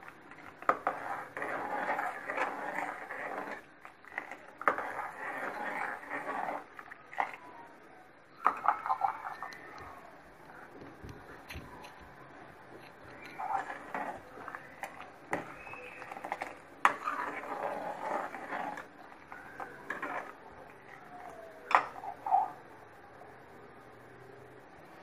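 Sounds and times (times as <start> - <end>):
soup bubbling in a pan: 0.0 - 7.4, 12.8 - 22.6.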